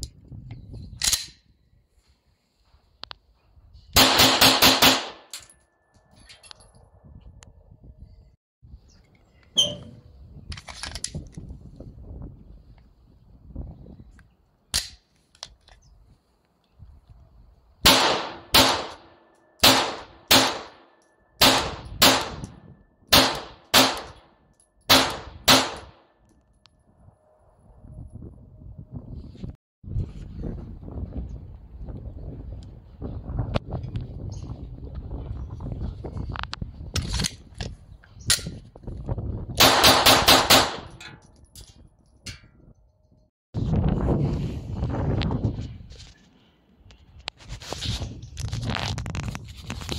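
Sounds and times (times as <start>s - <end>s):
pistol shots with echo: 4.0s - 5.3s, 17.9s - 20.8s, 21.4s - 22.5s, 23.1s - 24.3s, 24.9s - 26.0s, 39.6s - 40.9s.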